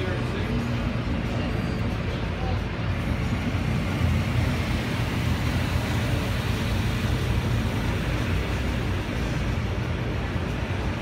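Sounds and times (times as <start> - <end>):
high-pressure spray hissing: 3.5 - 9.6.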